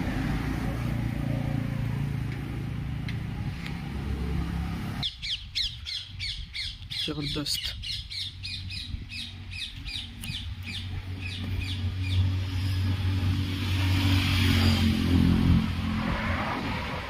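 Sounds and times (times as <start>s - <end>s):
birds chirping: 5.0s - 12.9s.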